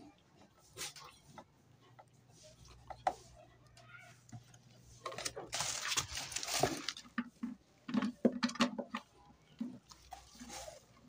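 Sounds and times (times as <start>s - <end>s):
plastic packaging crinkling: 5.1s - 7.2s.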